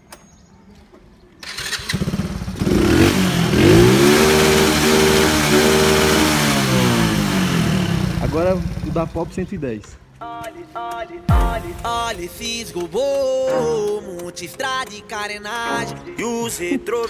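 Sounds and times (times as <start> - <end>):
motorcycle engine cranking: 1.4 - 9.2
motorcycle engine revving: 1.4 - 9.5.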